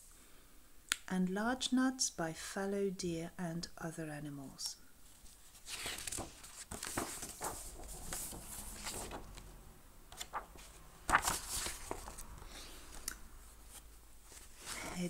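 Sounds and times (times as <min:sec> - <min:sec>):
paper pages rustling: 0:05.1 - 0:09.5, 0:10.1 - 0:13.0, 0:13.6 - 0:15.0.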